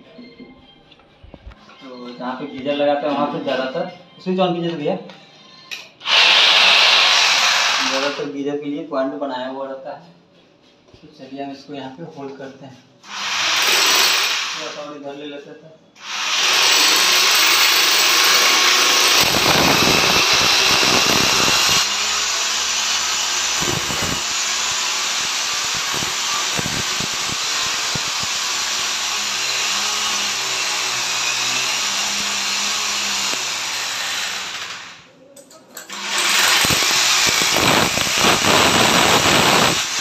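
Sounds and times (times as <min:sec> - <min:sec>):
electric drill boring into wall: 0:06.0 - 0:08.3, 0:13.1 - 0:14.8, 0:16.0 - 0:35.1, 0:35.9 - 0:40.0.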